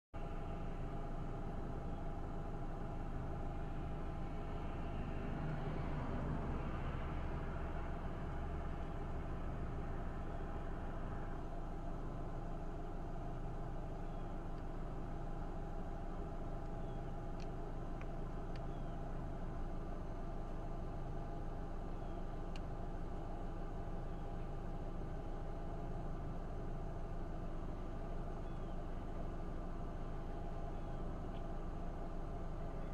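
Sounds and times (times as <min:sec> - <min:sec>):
engine rumble: 0:00.2 - 0:32.9
faint clicks: 0:16.6 - 0:18.9, 0:22.4 - 0:22.8.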